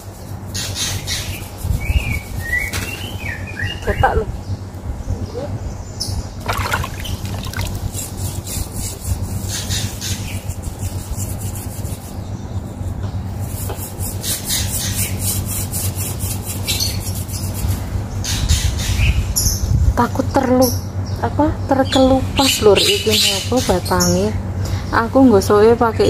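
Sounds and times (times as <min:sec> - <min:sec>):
mesh net scrubbing bark: 0:06.4 - 0:08.5.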